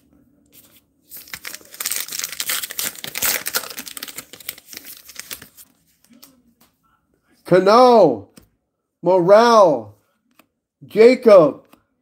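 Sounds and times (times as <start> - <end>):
card wrapper crinkling: 0.6 - 5.7.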